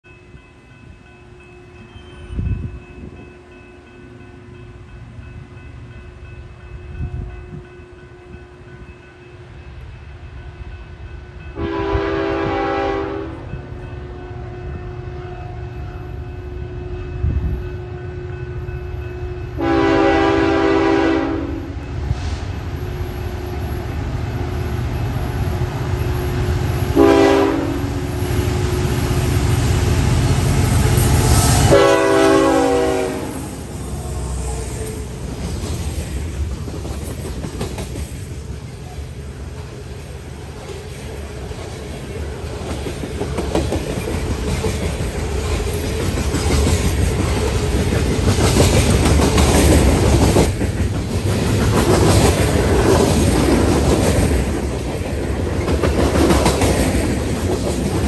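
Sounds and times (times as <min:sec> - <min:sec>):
train rumble: 0:00.1 - 0:58.0
locomotive horn blasts: 0:11.6 - 0:15.2, 0:19.6 - 0:21.8, 0:26.9 - 0:28.1, 0:30.8 - 0:35.0.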